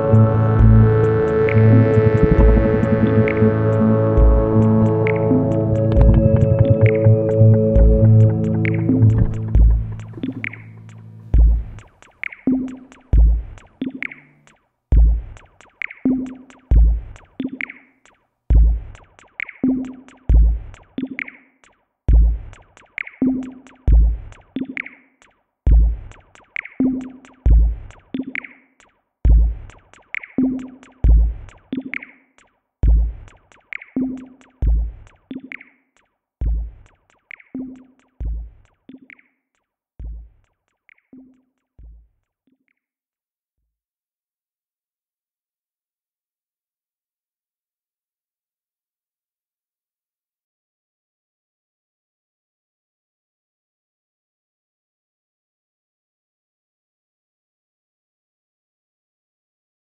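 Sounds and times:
drum machine beat: 0.0 - 39.3, 40.0 - 42.2.

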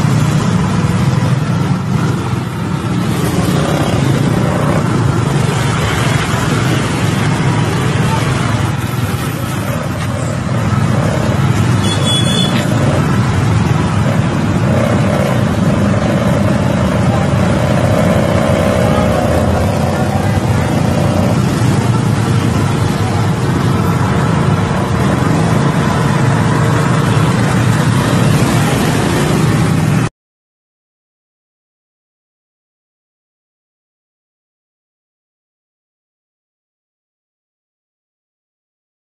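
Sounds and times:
motor vehicle and road noise: 0.0 - 30.1.

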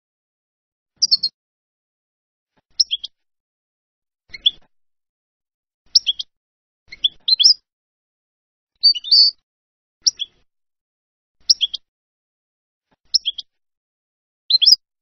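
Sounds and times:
goldfinch chirping and twittering: 1.0 - 1.3, 2.8 - 3.2, 4.3 - 4.6, 5.9 - 6.3, 6.9 - 7.6, 8.8 - 9.4, 10.0 - 10.4, 11.4 - 11.8, 13.1 - 13.5, 14.5 - 14.8.

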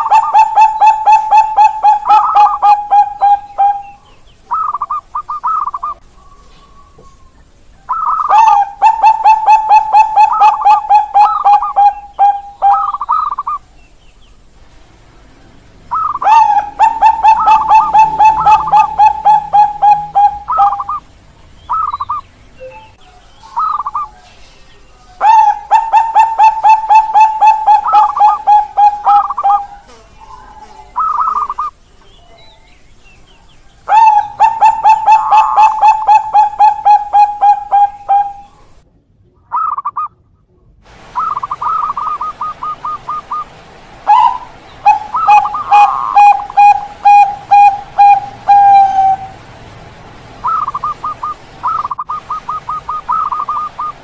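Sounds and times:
doves cooing: 0.0 - 13.7, 15.8 - 21.1, 21.7 - 31.8, 33.8 - 38.8, 41.0 - 54.0
dove trilled phrases: 0.0 - 14.5, 15.1 - 38.8, 40.9 - 54.0.

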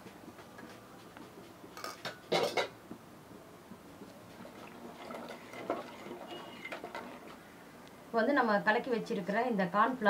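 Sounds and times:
spoon scraping metal cup: 5.0 - 7.3.

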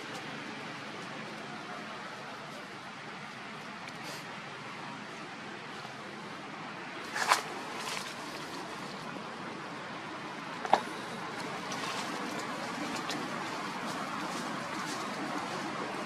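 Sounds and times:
outdoor background hiss: 0.0 - 16.0.

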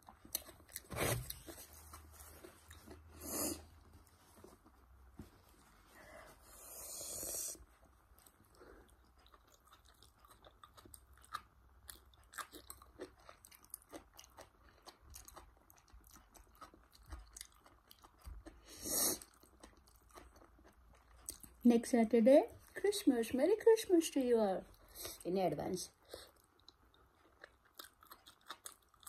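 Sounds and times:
chewing with soft crunches: 0.0 - 5.8, 7.6 - 21.7, 25.9 - 29.0.

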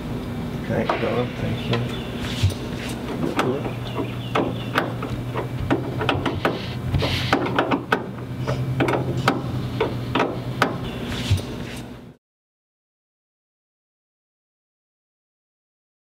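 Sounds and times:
steady low hum: 0.0 - 12.2
tool clicks and knocks: 3.2 - 11.4.

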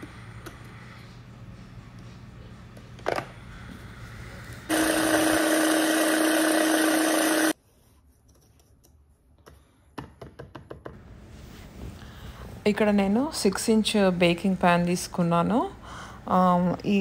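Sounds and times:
food processor chopping: 4.7 - 7.6.

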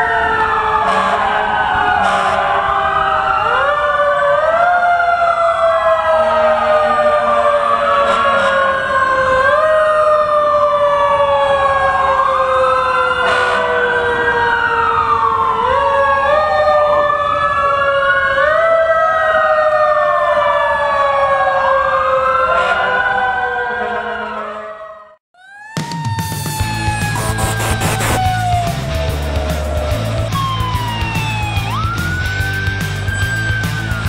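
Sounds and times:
fire truck sirens wailing: 0.0 - 34.0
low siren tone sliding downward: 0.0 - 34.0.

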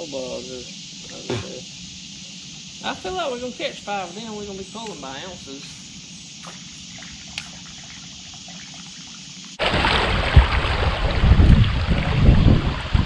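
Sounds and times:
faint steady hum: 0.0 - 13.0
wind buffeting microphone: 9.8 - 13.0.

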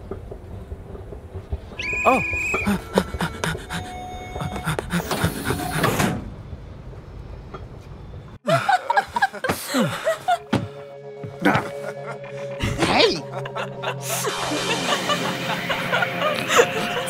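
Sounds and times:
metro platform rumble: 0.0 - 8.4, 10.2 - 17.0
people laughing: 2.6 - 6.0, 8.4 - 10.6, 11.2 - 17.0.

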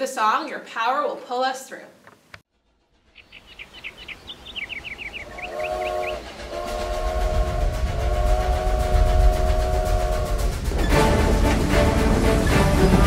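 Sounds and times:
train rumble: 2.8 - 13.0
high chirps: 3.1 - 6.4
steam locomotive whistle: 4.9 - 13.0.

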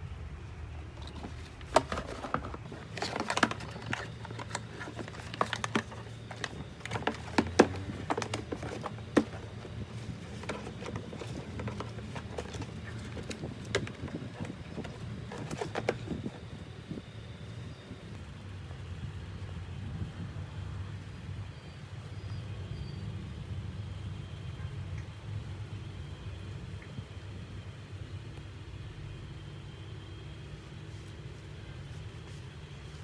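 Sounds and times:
low steady hum: 0.0 - 33.0
plastic knocks and clicks: 1.0 - 16.4.

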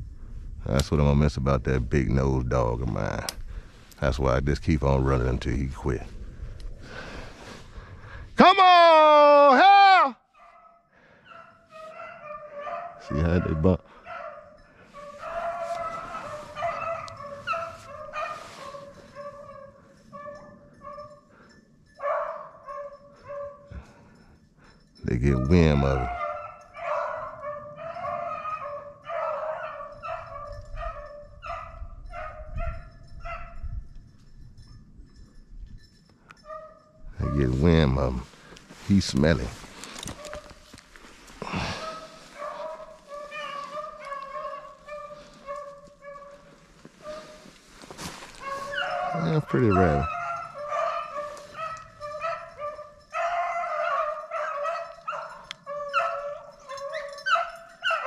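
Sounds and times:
dogs barking and yipping: 10.4 - 58.0
hounds baying: 10.4 - 58.0.

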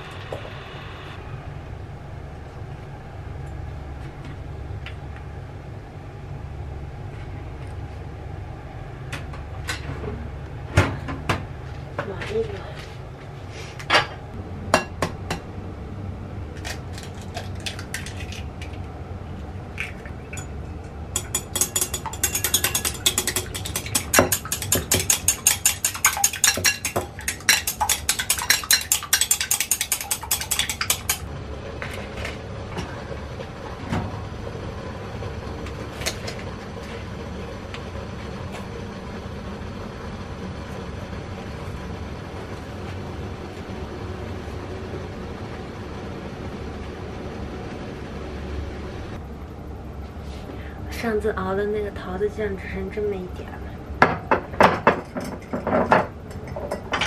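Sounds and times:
chopsticks beating eggs in glass bowl: 21.2 - 31.2.

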